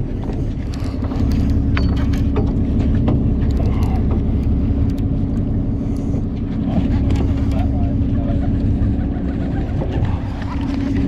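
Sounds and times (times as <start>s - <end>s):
boat motor droning: 0.0s - 11.0s
faint clicks and knocks: 0.1s - 7.6s.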